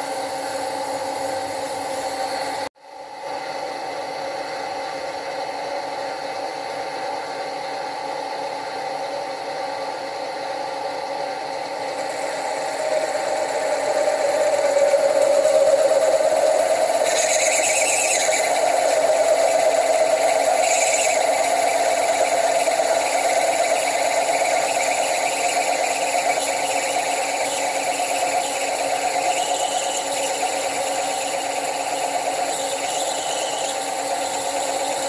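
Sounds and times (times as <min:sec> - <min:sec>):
drill machine whine cutting metal: 0:11.4 - 0:35.0.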